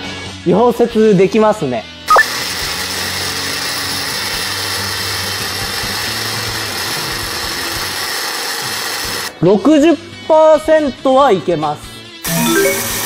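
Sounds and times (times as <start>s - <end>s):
welding arc hissing: 2.1s - 9.3s.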